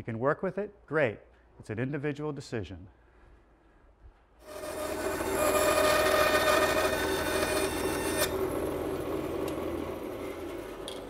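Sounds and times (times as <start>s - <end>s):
band saw cutting wood: 4.4s - 11.0s.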